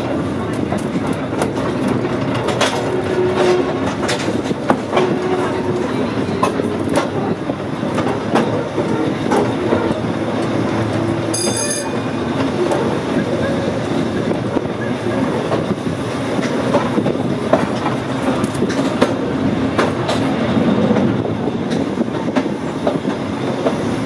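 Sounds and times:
wheels clicking over rail joints: 0.0 - 23.9
electric railway car rumble: 0.0 - 24.0
high wheel squeal: 11.3 - 12.2.

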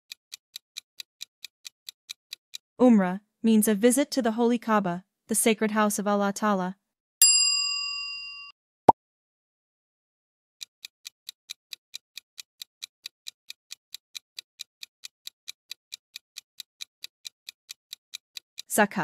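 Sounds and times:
clock ticking: 0.1 - 2.7, 10.6 - 18.8.

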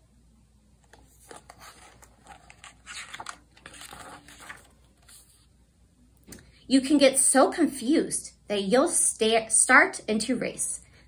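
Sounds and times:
book pages turning: 0.8 - 5.5.

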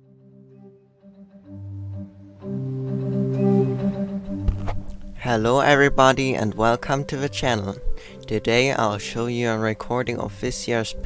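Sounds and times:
organ chords: 0.0 - 11.0.

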